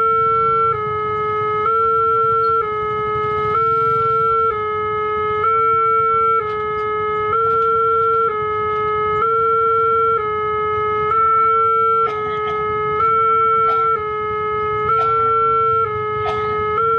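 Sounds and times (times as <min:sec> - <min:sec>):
level crossing two-tone alarm: 0:00.0 - 0:16.9.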